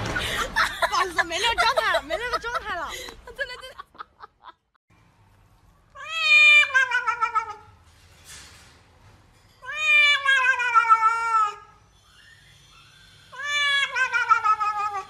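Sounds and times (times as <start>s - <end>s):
cat meowing: 6.0s - 7.7s, 9.6s - 11.7s, 13.3s - 15.0s.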